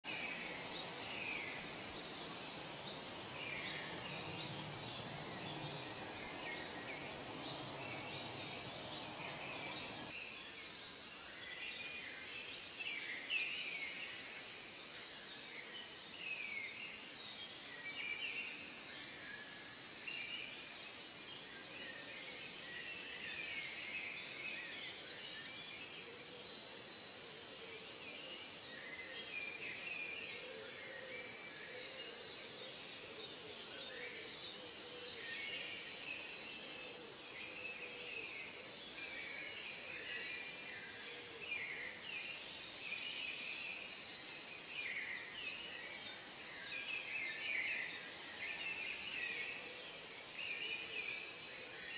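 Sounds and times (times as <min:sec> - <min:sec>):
birds chirping and calling: 0:00.1 - 0:10.1
low background hiss: 0:00.1 - 0:51.9.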